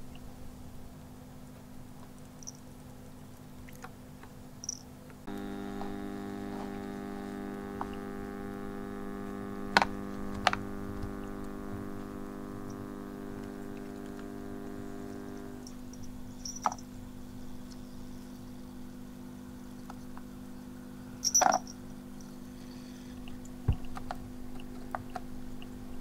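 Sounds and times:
electrical hum: 0.0s - 26.0s
sharp clicks: 5.3s - 16.8s.

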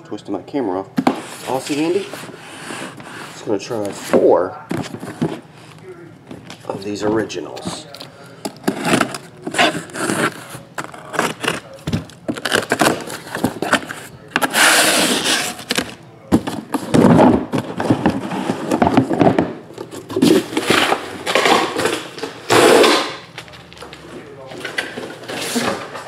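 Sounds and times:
cardboard scraping: 1.0s - 5.7s, 8.5s - 23.0s
boxes knocking: 16.3s - 23.1s.

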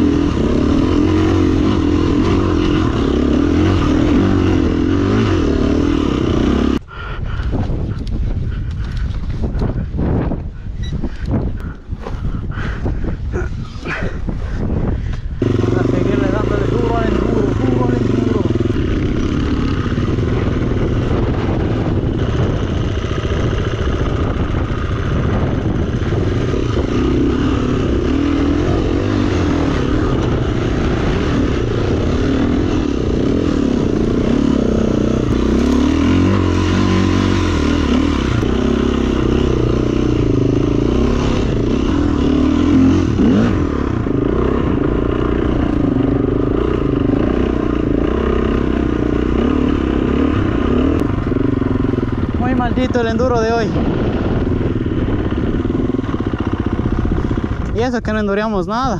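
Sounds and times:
dirt bike engine revving: 0.0s - 6.8s, 15.4s - 57.9s.

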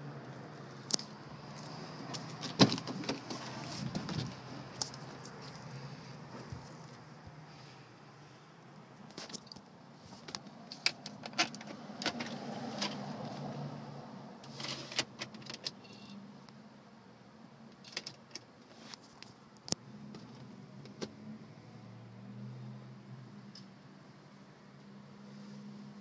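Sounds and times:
drawers opened and shut: 2.3s - 4.5s, 14.4s - 15.8s.

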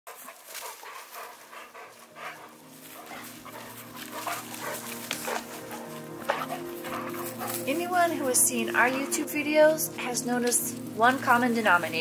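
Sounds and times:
dogs vocalizing while playing: 0.1s - 7.7s
soft music: 0.1s - 12.0s
undergrowth rustling and snapping: 0.1s - 12.0s.

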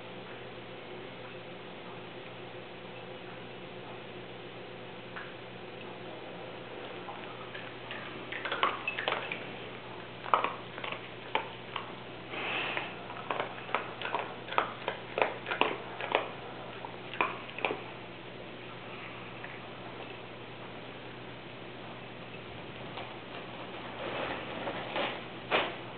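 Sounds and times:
dog chewing: 6.6s - 21.2s
dog sniffing: 7.2s - 17.9s.

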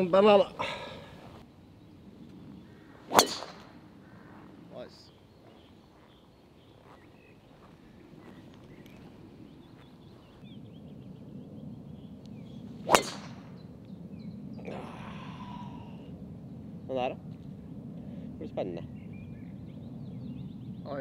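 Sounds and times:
golf club striking ball: 3.1s - 3.8s, 12.2s - 13.7s.

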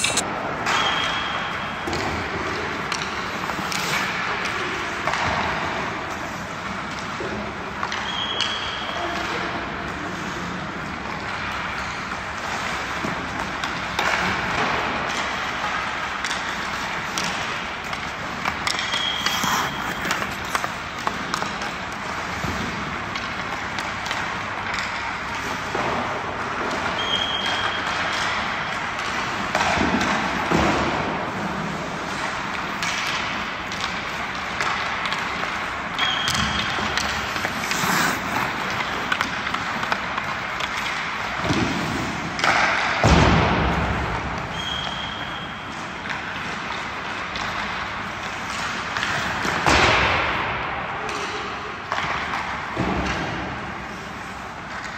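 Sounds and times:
skate blades scraping ice: 0.0s - 0.2s, 2.8s - 8.6s, 10.0s - 26.2s, 31.3s - 42.9s
hockey sticks and pucks knocking: 0.0s - 54.9s.

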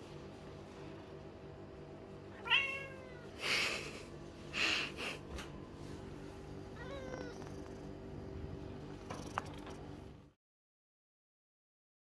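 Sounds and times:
cat meowing: 2.3s - 3.3s, 6.8s - 7.5s.

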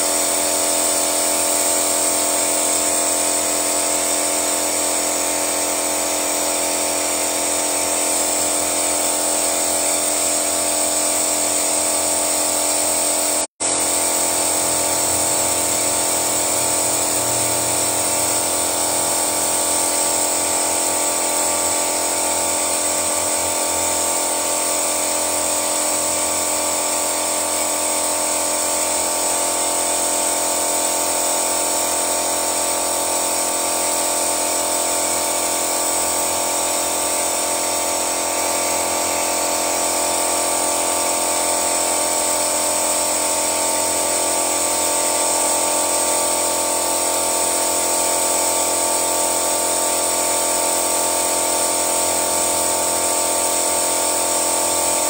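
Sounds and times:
high engine whine: 13.6s - 19.4s.

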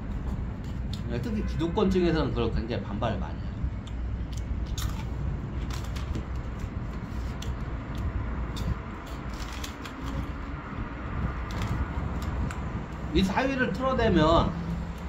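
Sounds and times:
crunchy snacks being chewed: 3.8s - 6.7s.

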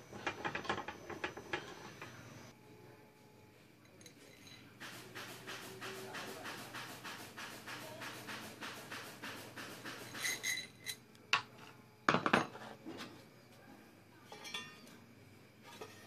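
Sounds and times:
metal clinks and knocks: 0.1s - 2.3s, 10.0s - 11.0s.

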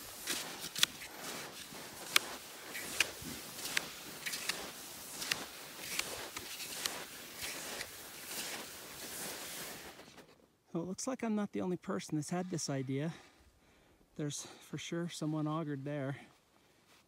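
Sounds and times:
footsteps crunching on snow: 0.0s - 10.4s.

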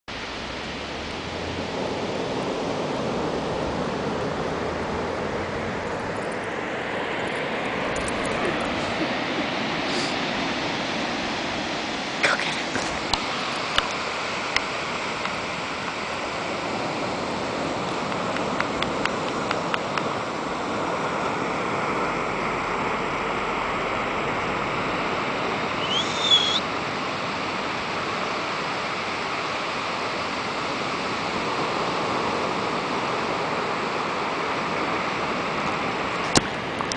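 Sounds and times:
ocean surf washing: 0.1s - 36.9s
short rising squeak: 25.8s - 26.6s.

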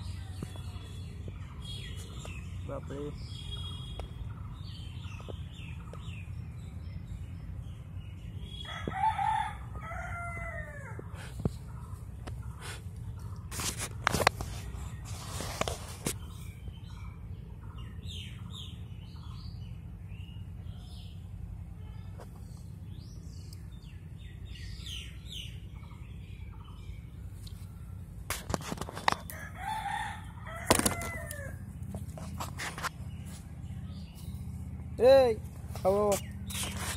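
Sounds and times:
birds chirping: 0.0s - 36.9s
rooster crowing: 8.6s - 11.0s, 29.3s - 31.7s.

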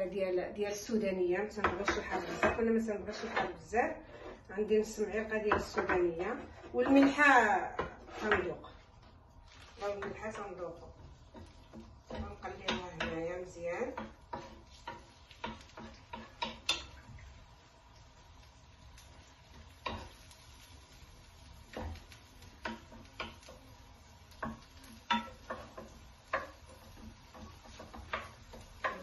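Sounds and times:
herbs sizzling in oil: 0.0s - 29.0s
wooden spoon knocking metal pan: 5.5s - 8.6s, 9.8s - 17.1s, 21.7s - 23.7s, 24.3s - 29.0s.

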